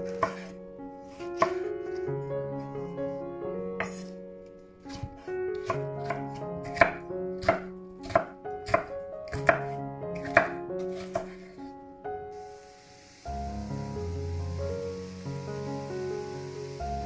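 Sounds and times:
soft background music: 0:00.0 - 0:17.0
knife chopping on cutting board: 0:00.1 - 0:00.5, 0:01.1 - 0:02.0, 0:03.8 - 0:04.1, 0:04.9 - 0:11.6.

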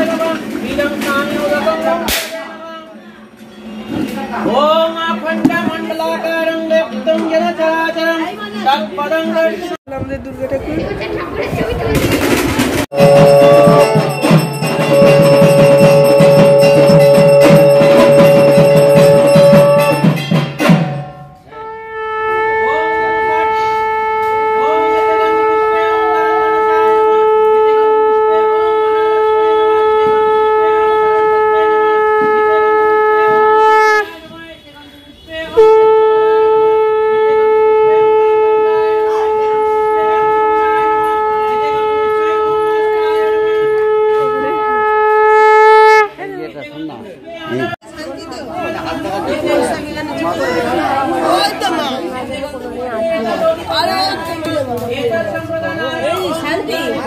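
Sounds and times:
rapid drumming with clattering: 0:11.5 - 0:21.3
conch shell blown: 0:12.9 - 0:20.2, 0:21.3 - 0:34.3, 0:35.5 - 0:46.2.

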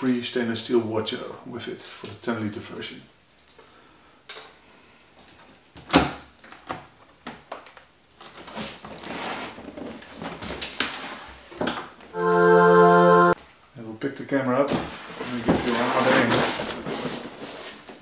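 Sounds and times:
cardboard flaps scraping and rustling: 0:08.2 - 0:11.8, 0:14.7 - 0:18.0.

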